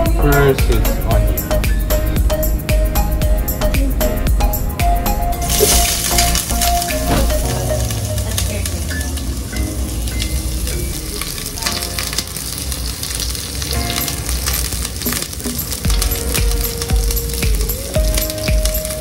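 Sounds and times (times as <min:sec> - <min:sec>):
onion sizzling in hot oil: 0:05.4 - 0:19.0.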